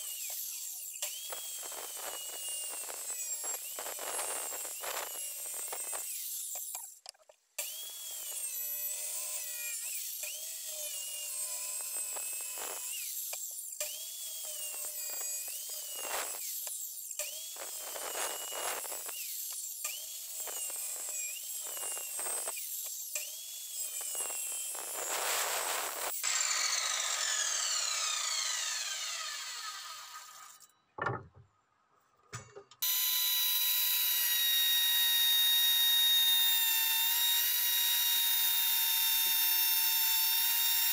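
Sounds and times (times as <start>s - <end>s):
saw blade winding down: 0.0s - 6.8s, 7.6s - 30.7s, 32.8s - 40.9s
circular saw cutting wood: 0.0s - 7.0s, 7.6s - 30.7s, 32.8s - 40.9s
hand router running: 23.3s - 30.6s, 32.8s - 40.9s.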